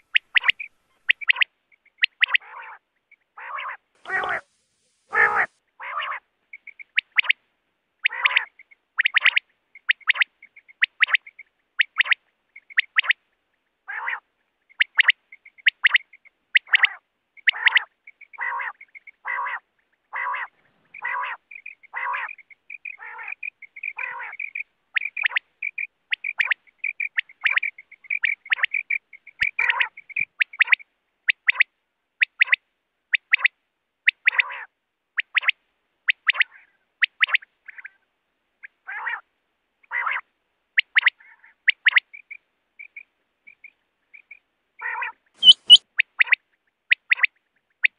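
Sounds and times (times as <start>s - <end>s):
quail calling: 0.0s - 4.5s, 5.1s - 7.4s, 8.0s - 13.2s, 13.9s - 32.6s, 34.1s - 38.0s, 38.6s - 47.9s
faint twittering: 0.0s - 7.4s, 14.6s - 30.9s, 45.4s - 46.4s.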